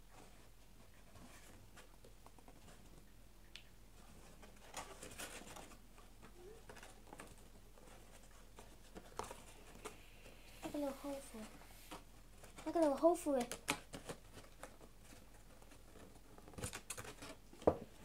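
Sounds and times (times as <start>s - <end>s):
cardboard crinkling: 4.0s - 18.0s.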